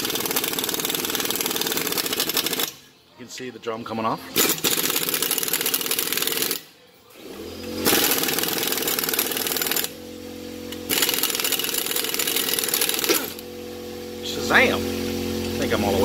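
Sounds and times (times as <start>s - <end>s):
impact wrench hammering: 0.0s - 2.8s, 4.4s - 6.7s, 7.8s - 10.0s, 10.7s - 13.4s.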